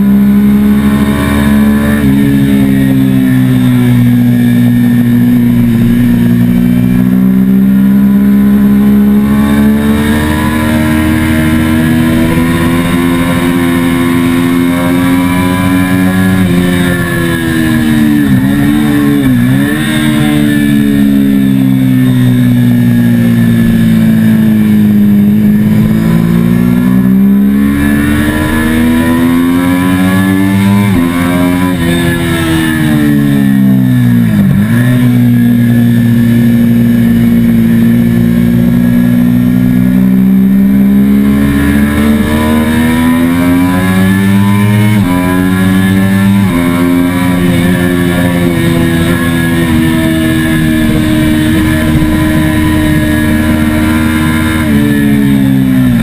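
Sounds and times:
motorcycle engine accelerating: 0.0s - 56.0s
wind rush: 48.4s - 56.0s.

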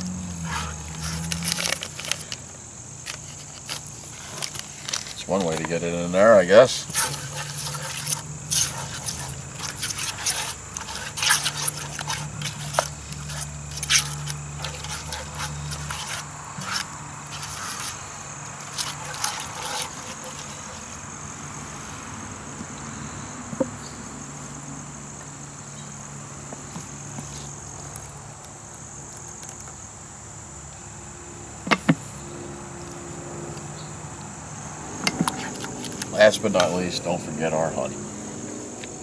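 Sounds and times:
spatula scraping thick sauce: 0.2s - 2.4s, 6.8s - 21.0s.

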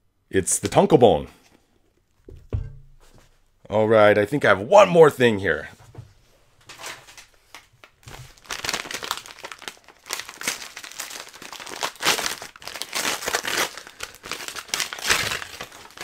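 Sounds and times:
crinkly packaging crackling: 6.7s - 16.0s.

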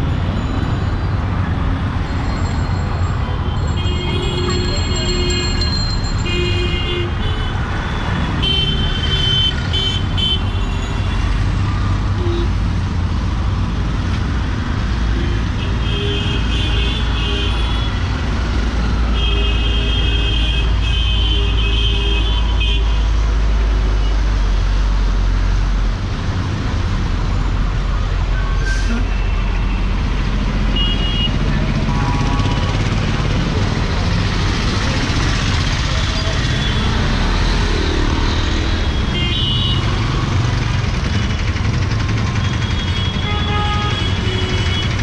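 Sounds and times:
traffic on wet road: 0.0s - 45.0s
vehicle horns honking: 3.5s - 11.1s, 38.9s - 40.0s, 42.5s - 45.0s.

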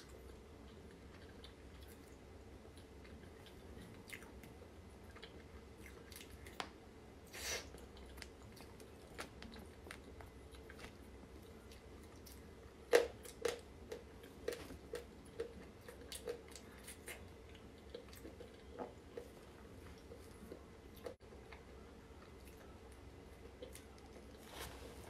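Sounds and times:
chewing cake: 0.0s - 25.0s.

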